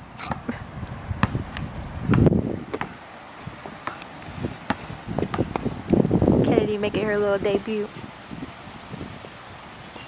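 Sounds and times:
basketball bouncing on concrete: 0:01.2 - 0:03.0, 0:03.6 - 0:06.1.

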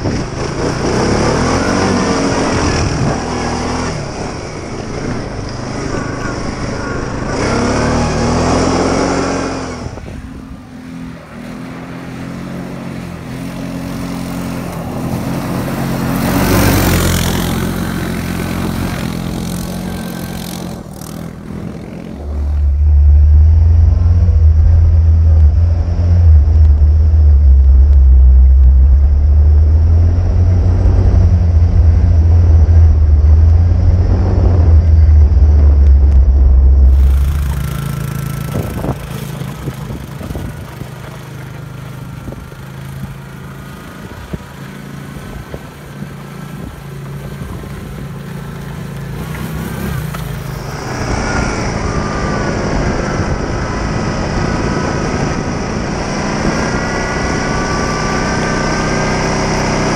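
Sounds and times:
quad bike engine revving: 0:00.0 - 0:59.9
loud low rumble: 0:22.3 - 0:40.7.

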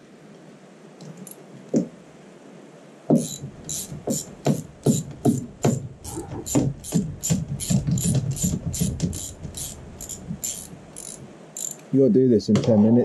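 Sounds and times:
ratchet wrench clicking: 0:03.2 - 0:04.3, 0:06.5 - 0:11.9.

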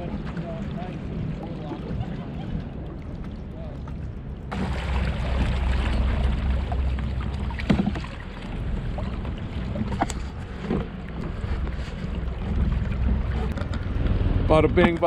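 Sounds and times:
wind rumbling on microphone: 0:00.0 - 0:15.0.

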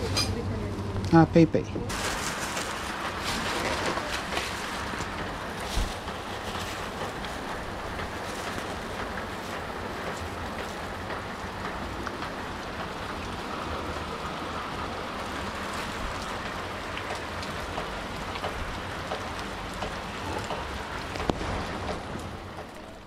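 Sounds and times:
steady rain falling: 0:01.9 - 0:23.0.

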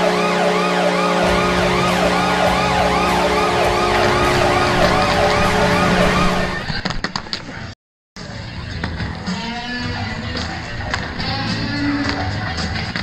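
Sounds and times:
low horn blast: 0:00.0 - 0:06.6
wailing siren: 0:00.0 - 0:06.7.

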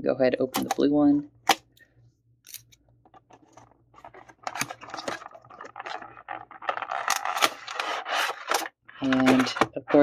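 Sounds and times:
cards shifting and rustling: 0:02.5 - 0:10.0.

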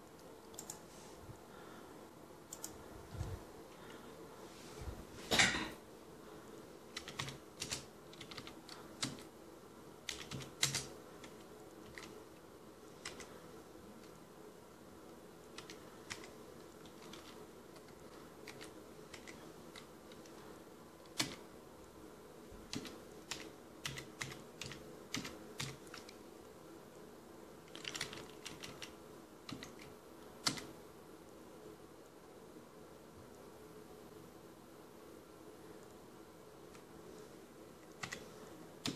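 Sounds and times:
faint steady hum: 0:00.0 - 0:38.9
keyboard typing clicks: 0:02.5 - 0:02.8, 0:07.0 - 0:09.3, 0:10.1 - 0:12.2, 0:22.7 - 0:26.2, 0:29.5 - 0:30.7, 0:37.8 - 0:38.2.

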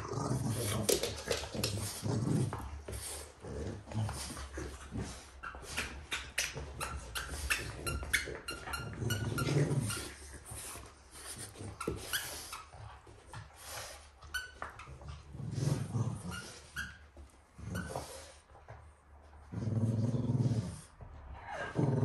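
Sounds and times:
dog growling low: 0:00.0 - 0:05.3, 0:19.4 - 0:22.0.

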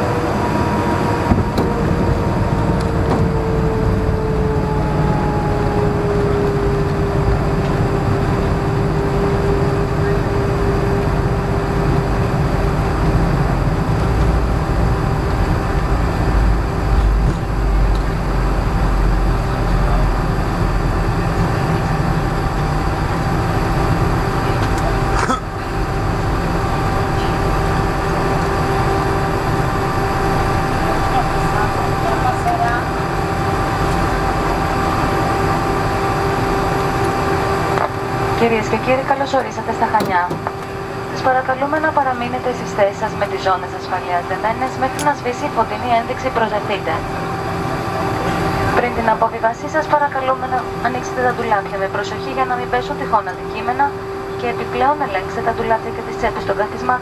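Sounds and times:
low rumble of wheels and airframe: 0:00.0 - 0:56.8
jet engine whine: 0:00.0 - 0:57.0.

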